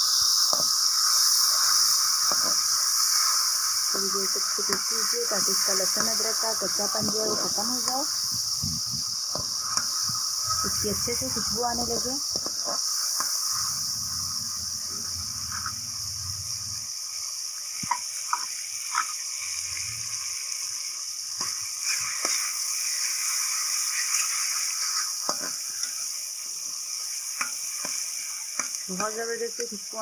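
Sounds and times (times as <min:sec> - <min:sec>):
onions sizzling in hot oil: 0:00.0 - 0:30.0
metal spoon scraping pan: 0:15.4 - 0:15.8.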